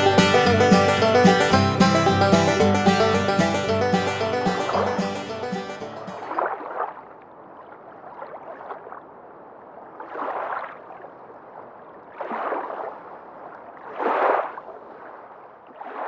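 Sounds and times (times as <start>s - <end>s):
water washing in surges: 6.0s - 16.0s.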